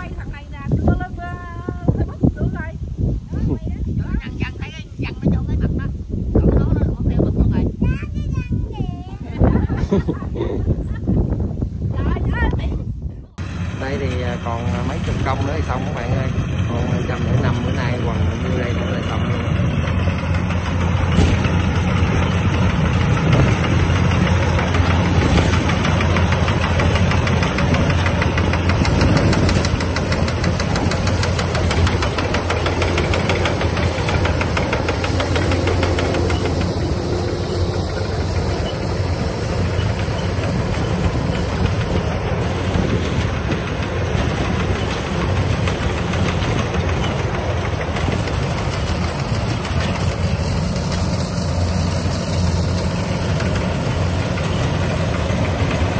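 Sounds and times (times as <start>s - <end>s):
diesel engine running under load: 13.3s - 55.9s
fast rattle of machinery: 13.4s - 55.9s.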